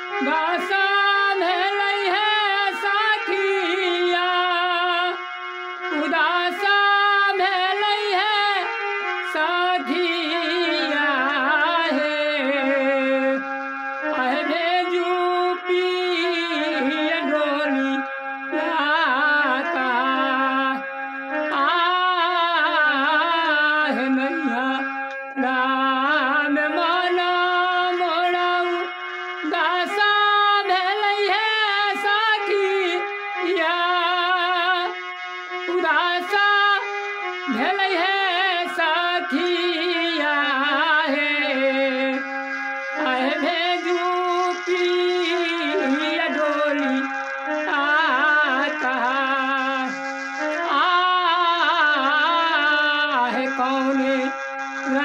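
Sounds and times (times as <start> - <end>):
man singing with vibrato: 0.0 - 55.0
held drone accompaniment: 28.0 - 55.0.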